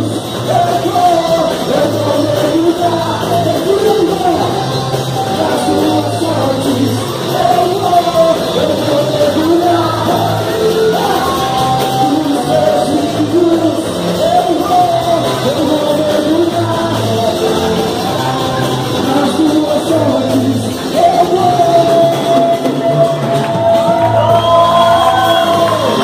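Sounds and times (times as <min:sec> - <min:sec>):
dance music with singing: 0:00.0 - 0:26.0
people shouting: 0:22.7 - 0:26.0.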